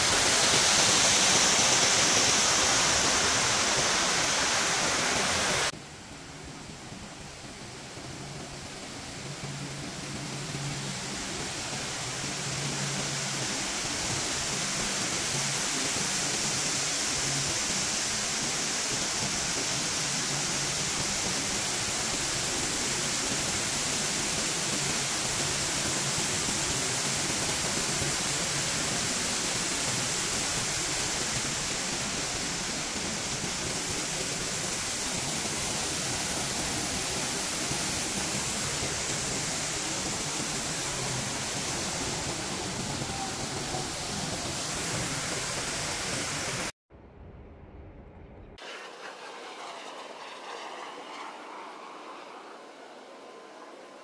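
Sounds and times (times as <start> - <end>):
falling water rushing: 0.0 - 5.8, 6.8 - 46.7.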